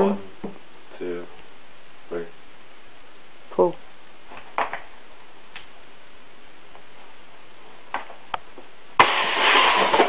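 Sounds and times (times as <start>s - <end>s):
gas rushing hiss: 9.0s - 10.0s
sharp pop: 9.0s - 10.0s.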